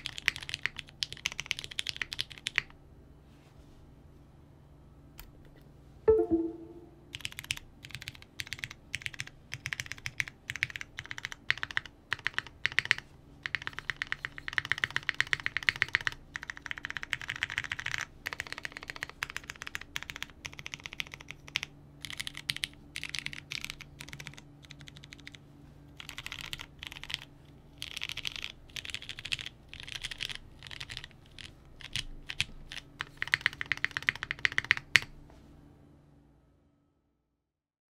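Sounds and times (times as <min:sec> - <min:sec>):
typing on mechanical keyboard: 0:00.0 - 0:02.7, 0:07.2 - 0:25.4, 0:26.0 - 0:35.1.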